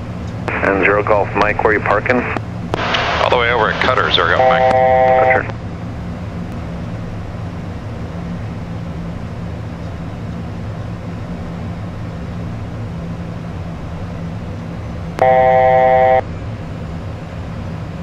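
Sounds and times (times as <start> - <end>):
low hum: 0.0 - 18.0
electronic cockpit alert tone: 3.8 - 5.5, 15.2 - 16.2.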